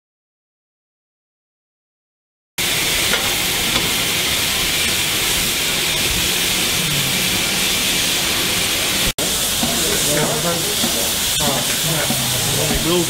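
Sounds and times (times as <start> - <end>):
steam hissing from locomotives: 2.6 - 13.0.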